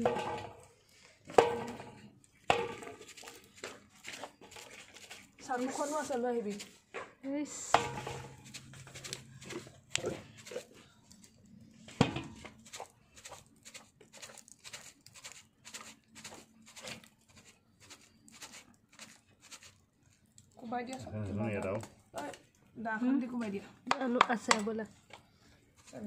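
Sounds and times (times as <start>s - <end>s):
stick knocking in metal bowl: 0.0s - 0.7s, 1.3s - 3.3s, 7.7s - 10.0s.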